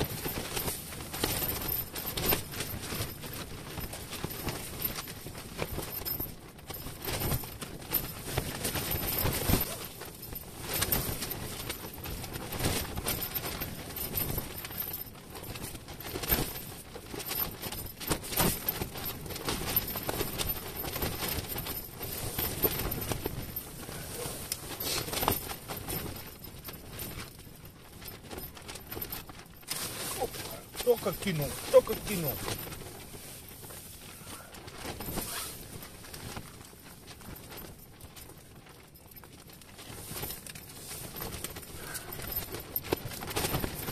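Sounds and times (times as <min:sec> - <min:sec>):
tent fabric flapping: 0:00.0 - 0:43.9.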